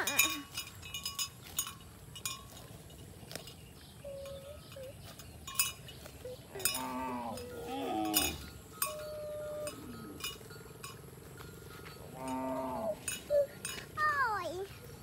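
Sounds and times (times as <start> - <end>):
cattle bells clinking: 0.0 - 15.0
cattle wavering calls: 4.0 - 5.2, 6.1 - 10.5, 11.3 - 13.9.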